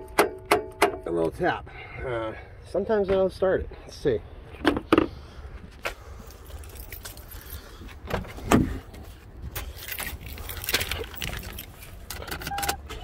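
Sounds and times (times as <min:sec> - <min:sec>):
scattered clicks and knocks: 0:00.0 - 0:01.1
keys jangling: 0:06.3 - 0:07.6, 0:09.6 - 0:12.0.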